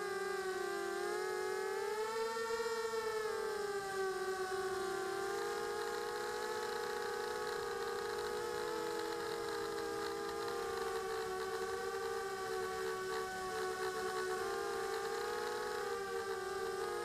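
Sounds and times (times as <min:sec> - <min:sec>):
drone propellers whining: 0:04.4 - 0:17.0.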